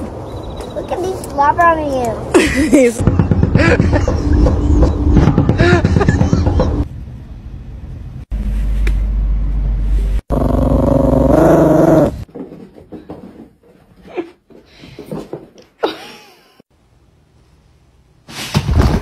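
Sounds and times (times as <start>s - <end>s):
dog growling: 10.3s - 12.2s.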